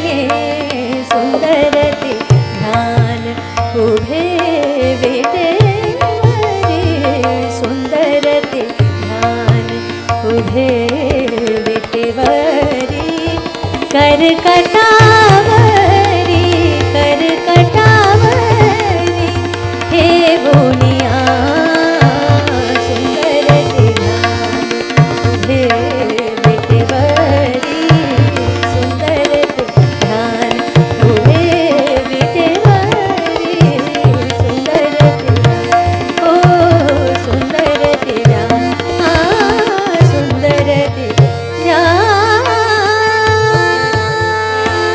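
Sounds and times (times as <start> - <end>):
tabla playing a rhythm: 0.0 - 44.9.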